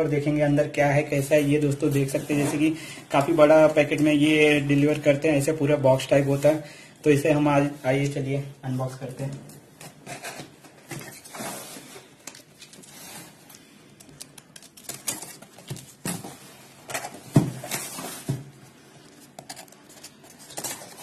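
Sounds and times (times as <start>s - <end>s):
hands scratching and rustling box tape: 9.9s - 16.1s, 19.0s - 21.0s.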